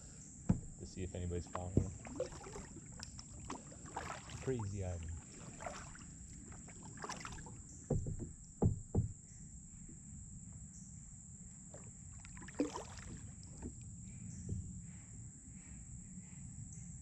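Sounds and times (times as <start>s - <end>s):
kayaks knocking: 0.5s - 9.4s
wind and water rushing: 1.5s - 7.5s.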